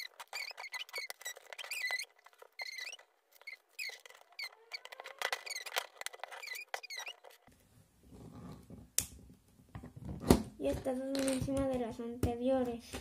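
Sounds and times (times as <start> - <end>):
high chirping squeaks: 0.0 - 7.5.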